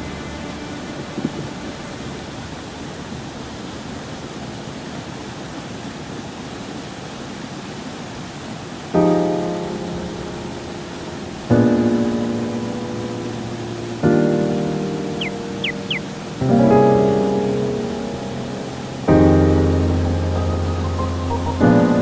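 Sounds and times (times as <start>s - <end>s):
piano chords ringing: 0.0s - 3.1s, 9.0s - 22.0s
mountain stream rushing: 0.0s - 22.0s.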